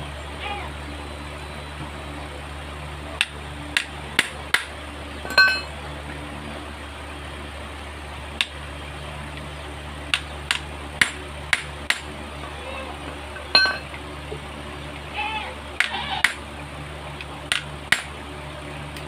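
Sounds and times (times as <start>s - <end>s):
steady low hum: 0.0s - 19.0s
ringing metallic clink: 5.3s - 5.7s, 13.5s - 13.9s.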